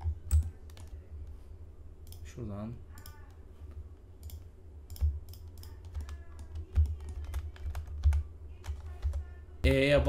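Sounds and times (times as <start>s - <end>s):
keyboard keys clicking: 4.2s - 9.2s.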